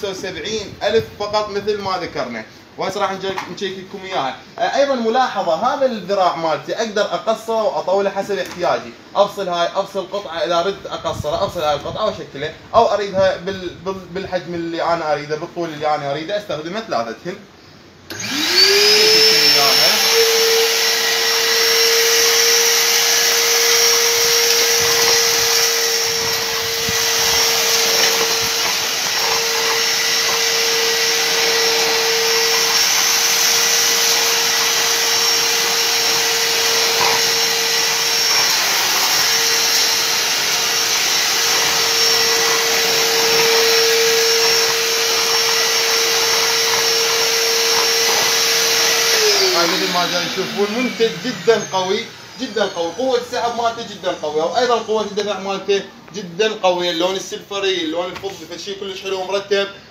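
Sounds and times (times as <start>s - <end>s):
vacuum cleaner running: 18.1s - 55.4s
nozzle sweeping grit off carpet: 23.3s - 51.2s.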